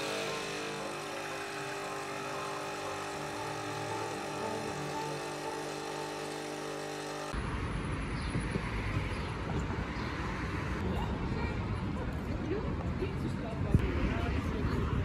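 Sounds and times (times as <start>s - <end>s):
espresso machine pump humming: 0.0s - 7.4s
passing traffic: 7.3s - 15.0s.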